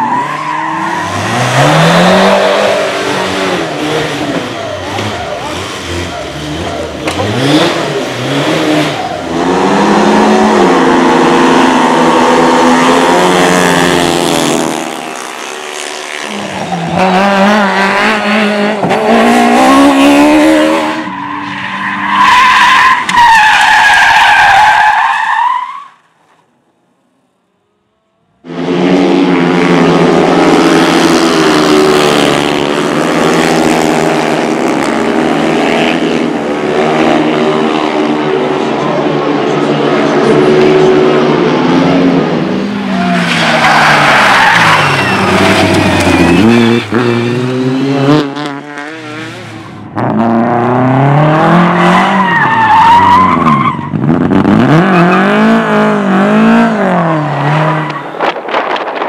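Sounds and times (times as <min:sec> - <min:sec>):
motorcycle engines racing: 0:00.0 - 0:21.2, 0:28.4 - 0:59.0
tyres squealing: 0:42.9 - 0:47.0.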